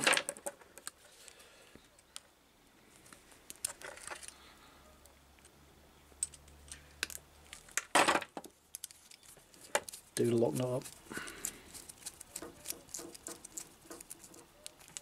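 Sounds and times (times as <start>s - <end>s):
wire cutters snipping metal braid: 9.8s - 15.0s.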